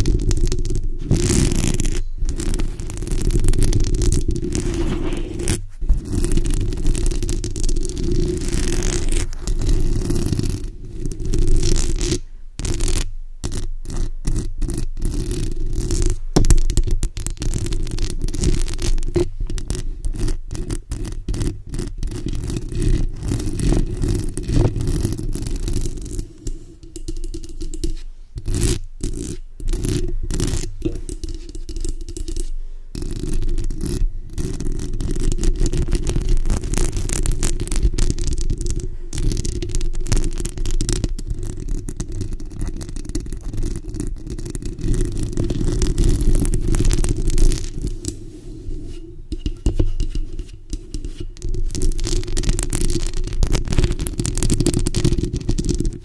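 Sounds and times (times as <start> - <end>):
fingernails scratching microphone grille: 0.0 - 12.0, 17.3 - 38.2, 44.5 - 54.2.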